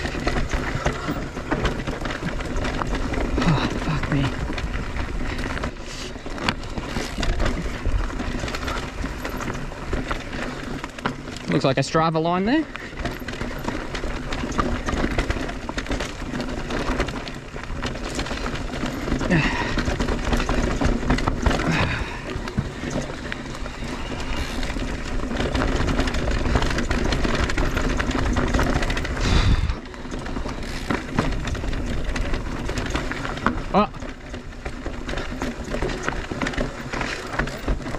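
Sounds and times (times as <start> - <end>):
bike rattling over rough ground: 0.0 - 37.9
rushing wind noise: 29.1 - 29.8.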